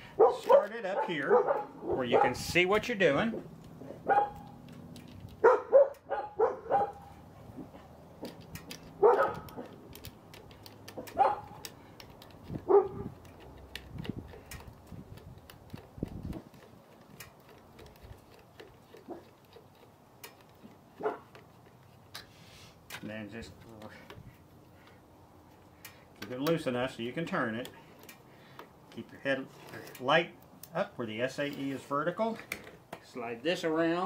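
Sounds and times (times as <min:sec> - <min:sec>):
dog barking and yipping: 0:00.2 - 0:02.4, 0:03.8 - 0:04.6, 0:05.4 - 0:07.9, 0:08.9 - 0:09.7, 0:11.0 - 0:11.6, 0:12.6 - 0:13.1, 0:21.0 - 0:21.3
screwdriver metallic clicks: 0:08.2 - 0:22.2, 0:25.8 - 0:30.8.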